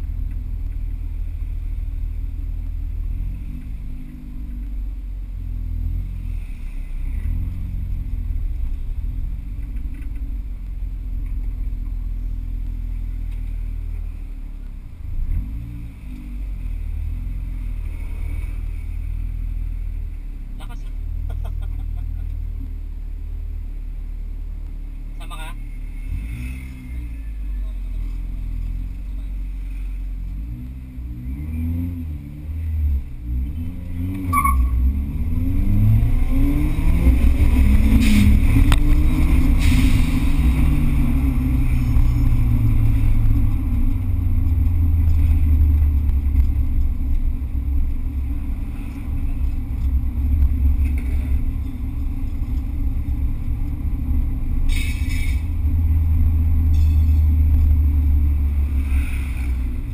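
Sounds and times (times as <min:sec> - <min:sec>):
car engine revving: 0:25.0 - 0:59.9.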